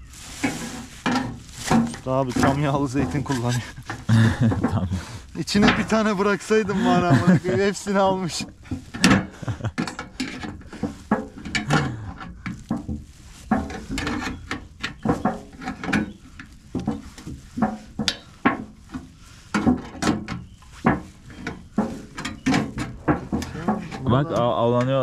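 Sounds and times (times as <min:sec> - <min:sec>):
dishes and utensils clattering: 0:00.4 - 0:12.9.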